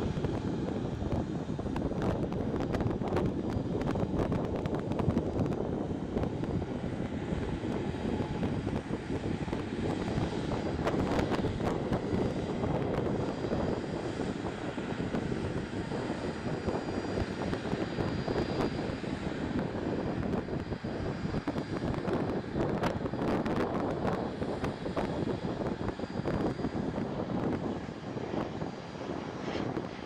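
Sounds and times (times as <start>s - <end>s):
jet engines steady noise: 0.0s - 30.0s.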